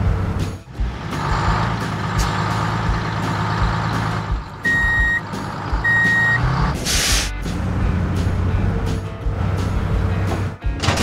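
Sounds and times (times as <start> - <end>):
heavy vehicle engine running: 0.0 - 11.0
reversing alarm beeping: 4.6 - 5.2, 5.8 - 6.5.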